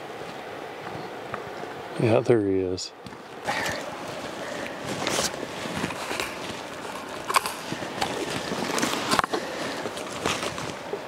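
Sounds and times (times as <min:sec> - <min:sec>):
footsteps on rocky gravel: 0:03.1 - 0:10.9.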